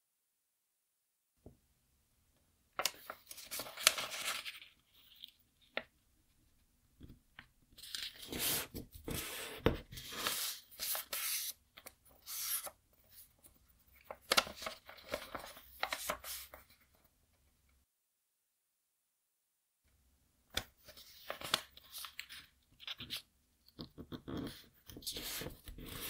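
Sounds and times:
paper rustling and crinkling: 2.8 - 5.9, 7.8 - 13.4, 14.0 - 16.9, 20.6 - 23.3.

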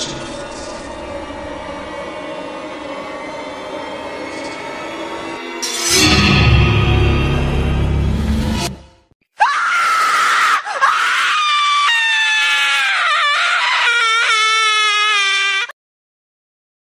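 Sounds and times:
scary music: 0.0 - 9.2
loud high-pitched scream: 9.4 - 15.8.

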